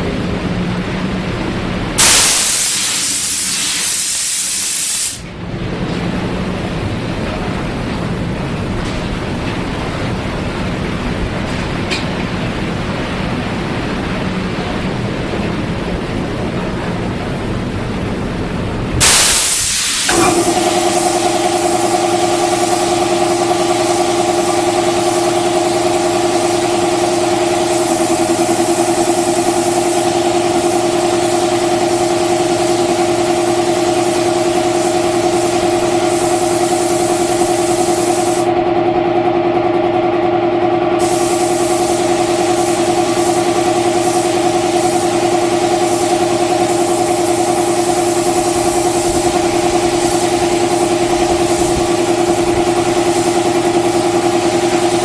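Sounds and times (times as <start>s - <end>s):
paint spray gun hissing: 2.0s - 5.3s, 19.0s - 38.5s, 41.0s - 55.0s
motor hum: 18.3s - 22.4s.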